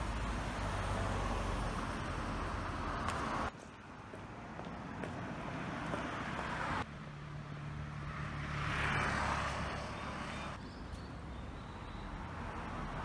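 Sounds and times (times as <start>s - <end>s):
cars passing: 0.0s - 13.0s.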